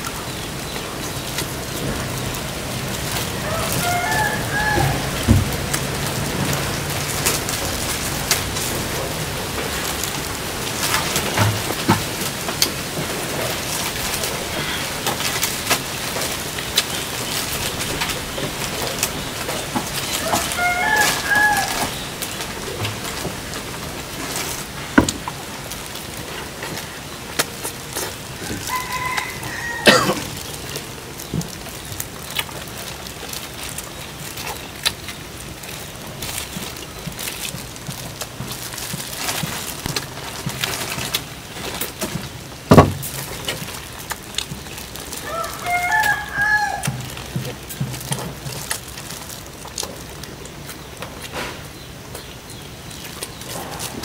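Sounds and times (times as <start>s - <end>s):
rooster crowing: 3.1s - 6.7s, 20.0s - 22.2s, 28.3s - 30.4s, 45.2s - 47.0s
sharp knocks: 42.7s - 43.2s.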